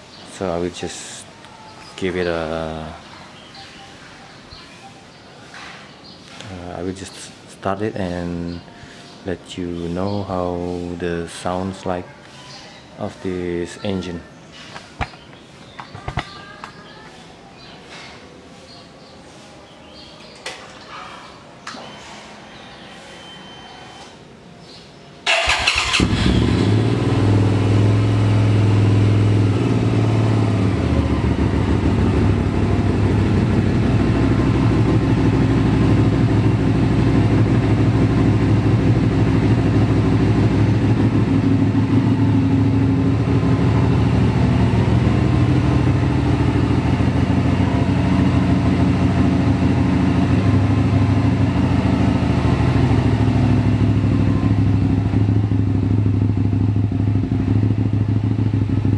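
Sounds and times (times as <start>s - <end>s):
motorcycle engine starting and idling: 25.2s - 58.9s.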